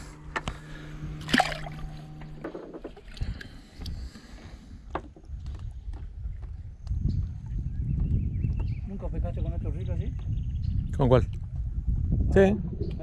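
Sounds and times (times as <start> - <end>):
water sloshing around boat: 0.2 - 5.3
fish splashing into water: 1.2 - 2.1.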